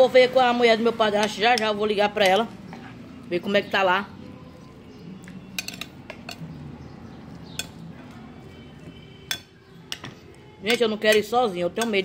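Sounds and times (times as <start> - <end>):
spoon clinking on glass bowl: 5.5 - 6.4, 7.5 - 7.8, 9.2 - 10.1.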